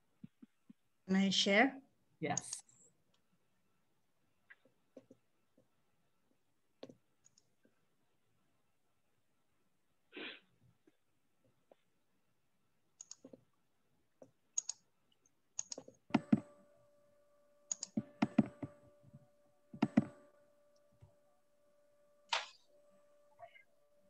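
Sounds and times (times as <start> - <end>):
keyboard typing and mouse clicks: 6.8 - 7.6, 13.0 - 13.6, 14.2 - 16.7, 17.7 - 21.2
faint steady hum: 10.7 - 24.0.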